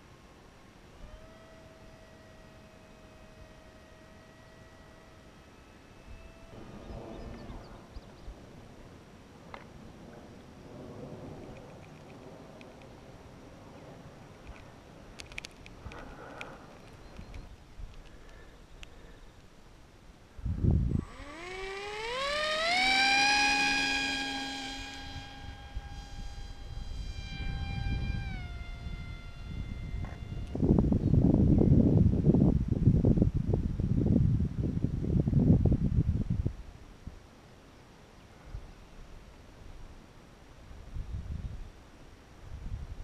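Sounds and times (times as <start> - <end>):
electric motor whine: 0.0 - 8.0, 20.4 - 31.0
wind buffeting microphone: 20.4 - 36.7.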